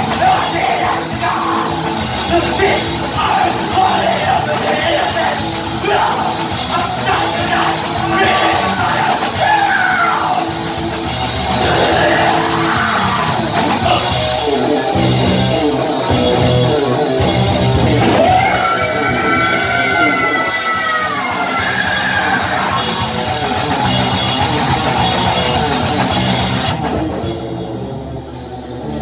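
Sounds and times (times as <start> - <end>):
shouted vocals: 0.0 - 10.6, 11.5 - 14.4, 17.9 - 23.7
heavy metal band playing: 0.0 - 29.0.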